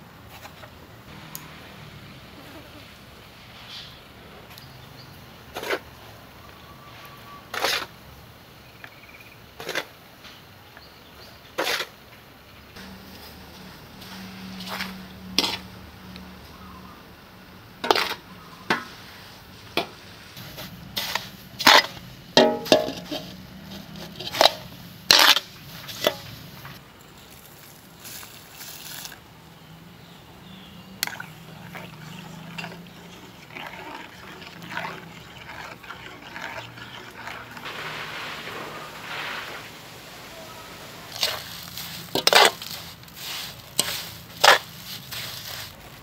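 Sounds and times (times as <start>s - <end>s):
cleaver scraping metal basin: 7.1s - 7.9s, 12.8s - 15.8s, 17.8s - 19.0s, 19.8s - 26.8s, 31.0s - 46.0s
metal spoon stirring in pot: 20.4s - 26.7s, 31.0s - 37.7s, 41.1s - 45.8s
rice pouring into water: 31.0s - 45.8s.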